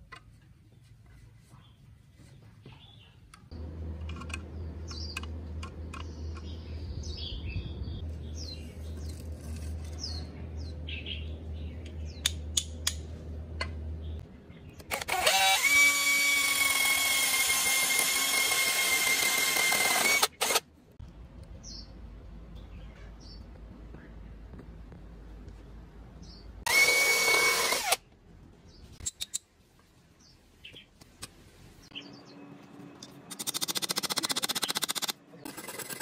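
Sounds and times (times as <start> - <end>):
power drill boring bamboo: 14.9 - 20.6, 26.7 - 28.0.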